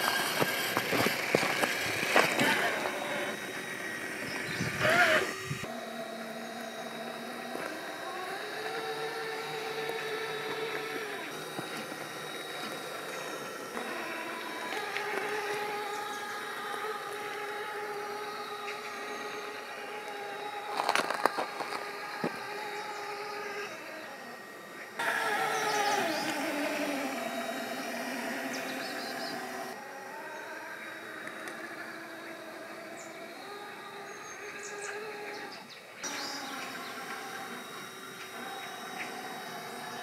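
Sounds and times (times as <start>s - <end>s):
tyres grinding over gravel: 0.0s - 5.7s, 7.0s - 29.8s
electric motor whining: 0.0s - 40.0s.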